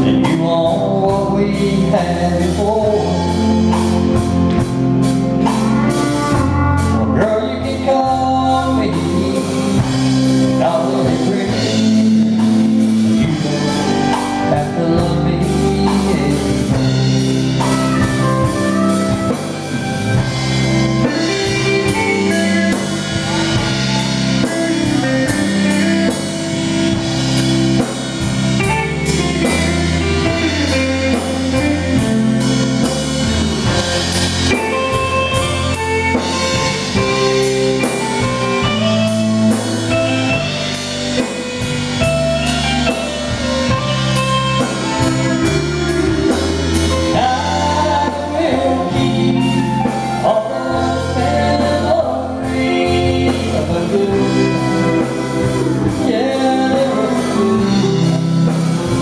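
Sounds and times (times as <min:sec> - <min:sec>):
drum kit with cymbals: 0:00.0 - 0:59.0
electric guitars: 0:00.0 - 0:59.0
person singing: 0:00.0 - 0:59.0.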